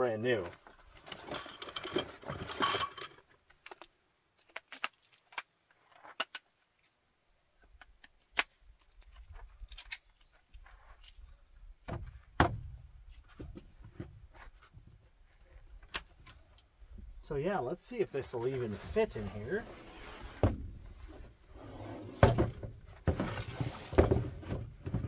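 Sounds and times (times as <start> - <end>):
dull thump: 11.9 - 12.8, 20.2 - 21.3, 22.0 - 25.0.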